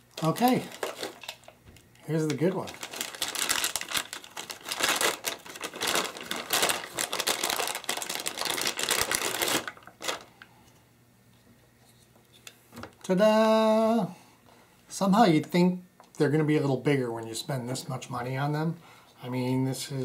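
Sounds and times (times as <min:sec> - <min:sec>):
metallic wrapping crumpling: 0:00.1 - 0:10.4.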